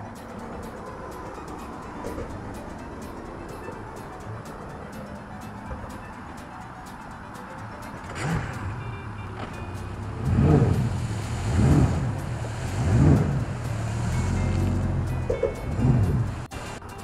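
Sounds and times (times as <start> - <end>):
outboard motor revving: 7.6 - 16.7.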